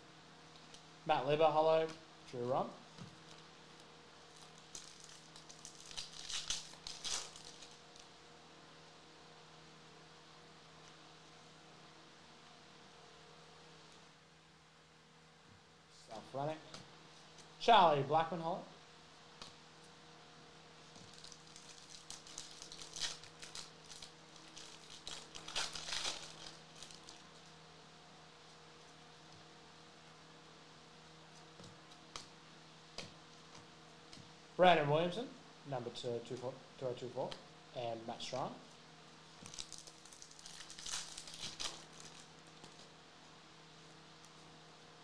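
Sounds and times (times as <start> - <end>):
faint electrical hum: 0.0 - 45.0
foil wrapper crinkling and tearing: 4.3 - 8.1, 20.9 - 27.5, 39.4 - 42.9.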